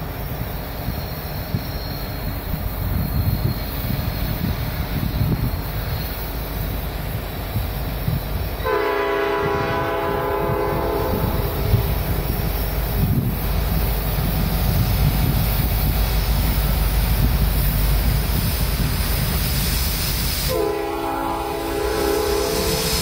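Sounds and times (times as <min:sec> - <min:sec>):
train wheels on rails: 0:00.0 - 0:23.0
locomotive air horn: 0:08.6 - 0:12.3, 0:20.4 - 0:23.0.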